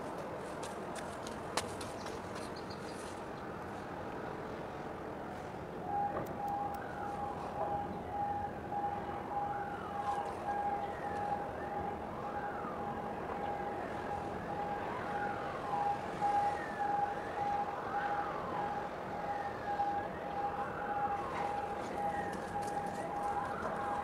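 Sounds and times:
siren wailing: 5.8 - 24.0.

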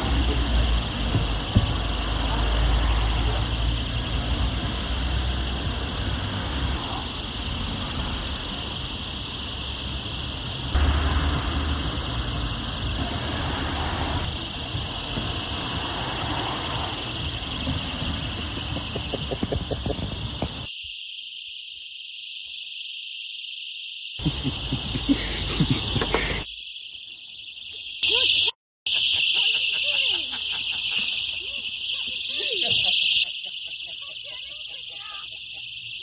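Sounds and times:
street traffic rumble: 0.0 - 20.7, 24.2 - 26.5, 27.5 - 36.0
personal alarms shrieking: 11.8 - 36.0.

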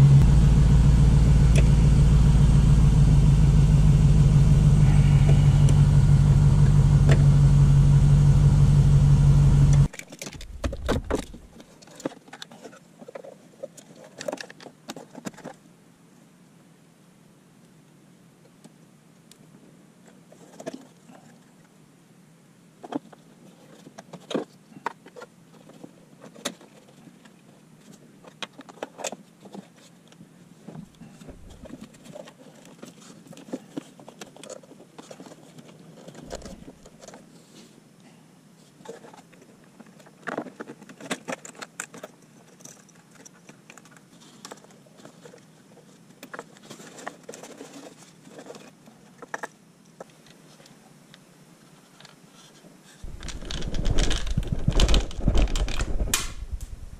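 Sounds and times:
dull low thumps: 0.0 - 11.5, 53.1 - 56.9
hands handling plastic connectors: 53.1 - 56.6.

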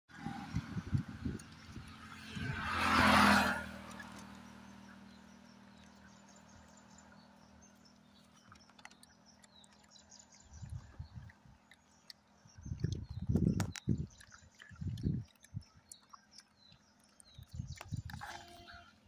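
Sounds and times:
vehicle passing by: 0.1 - 7.9.

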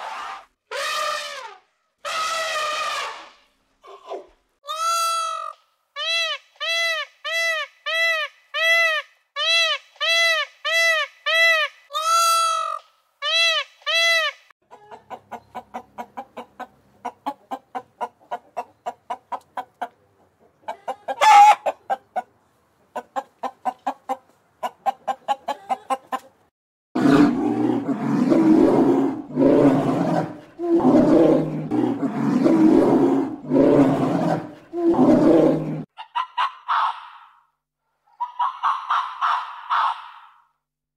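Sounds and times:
hen clucking: 14.6 - 26.4, 36.0 - 37.3, 38.2 - 40.3.

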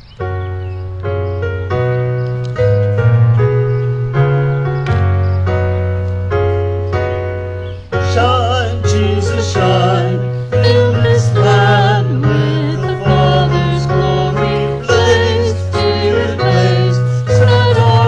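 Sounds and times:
electric keyboard chords: 0.0 - 18.0
person singing with vibrato: 8.0 - 18.0.

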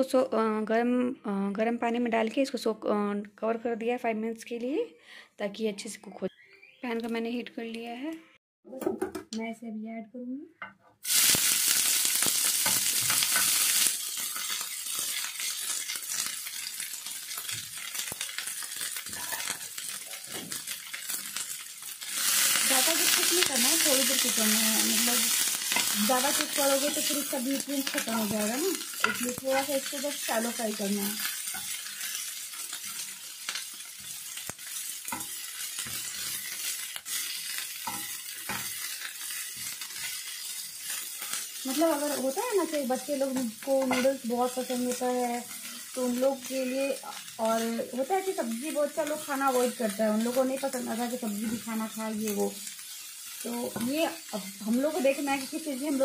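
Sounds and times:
vegetables sizzling in hot oil: 11.0 - 56.0
spatula scraping and tapping pan: 12.3 - 21.4, 23.0 - 42.4, 43.2 - 46.5, 48.8 - 54.6.

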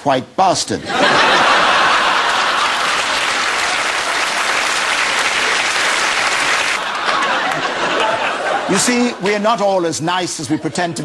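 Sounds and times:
audience applauding: 1.3 - 8.4.

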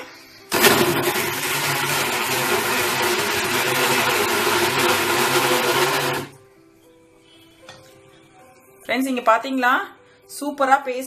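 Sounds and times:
mixer grinder motor running: 0.5 - 6.4.

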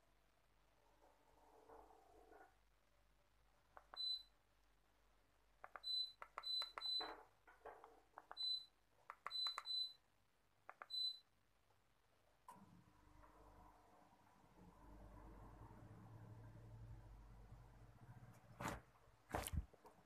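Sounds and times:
air conditioner short high beeps: 4.0 - 4.4, 5.8 - 7.0, 8.4 - 10.0, 10.9 - 11.3
remote button clicks: 5.6 - 7.1, 8.2 - 9.9.

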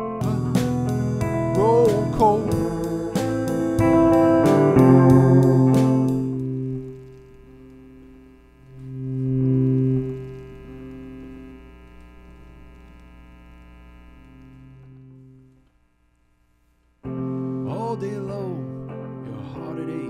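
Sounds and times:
person singing: 0.0 - 7.0, 17.4 - 20.0
keyboard chord: 0.0 - 11.5.

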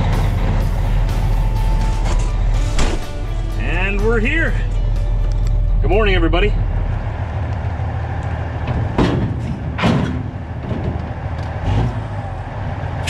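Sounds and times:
diesel engine idling: 0.0 - 13.0
metallic clunks: 1.8 - 3.3, 8.7 - 11.1.

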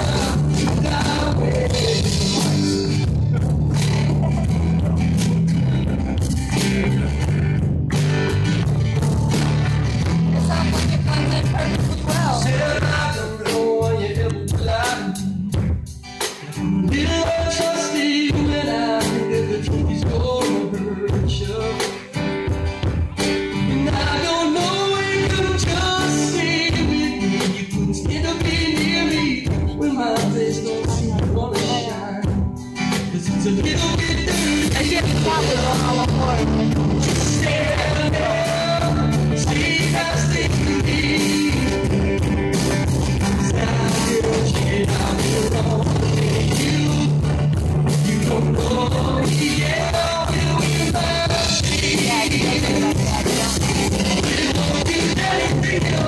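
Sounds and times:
acoustic guitar: 0.0 - 56.0
drum kit: 0.0 - 56.0
electric guitars: 0.0 - 56.0.

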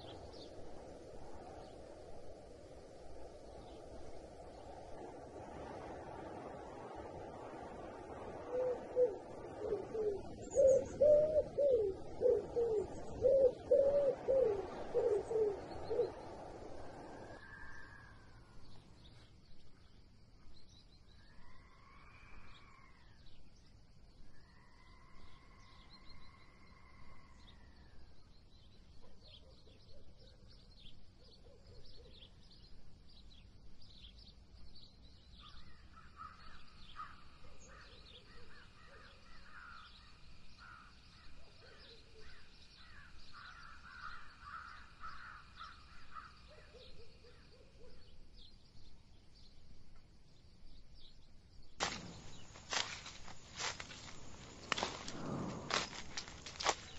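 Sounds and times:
long rising and falling bird calls: 0.0 - 19.7, 21.0 - 23.4, 35.4 - 48.2, 51.8 - 56.9.

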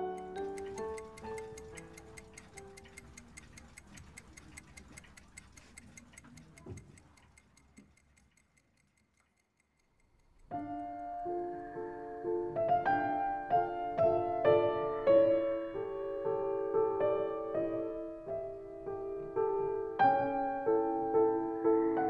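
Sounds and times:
piano notes: 0.0 - 3.0, 10.5 - 22.0
clock ticking fast: 0.0 - 11.0.

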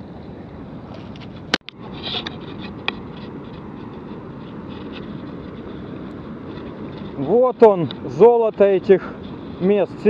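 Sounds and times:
fast-flowing river water: 2.4 - 10.0.

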